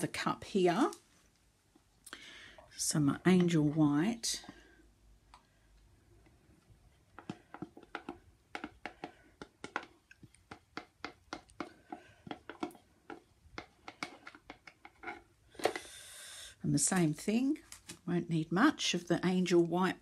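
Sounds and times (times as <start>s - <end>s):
plastic stick and cups clicking: 7.2s - 15.9s.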